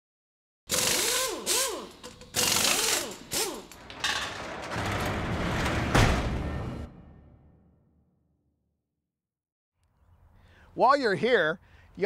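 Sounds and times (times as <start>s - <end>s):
heavy hit: 4.7s - 8.0s.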